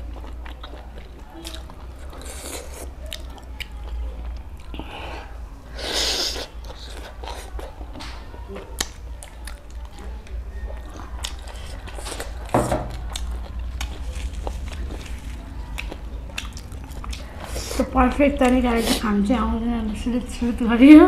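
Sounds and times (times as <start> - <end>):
chewing and mouth smacks: 0.0 - 4.8, 6.4 - 17.8.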